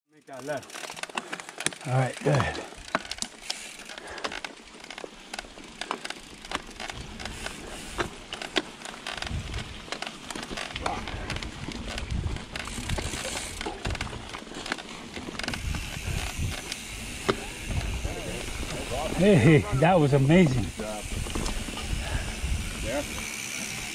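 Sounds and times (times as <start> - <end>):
bike clicks and rattles: 0.1 - 23.9
bike tyres crunching on dirt: 0.1 - 23.9
wind rumble on microphone: 9.2 - 9.8, 10.8 - 14.3, 15.5 - 19.2, 20.6 - 23.0.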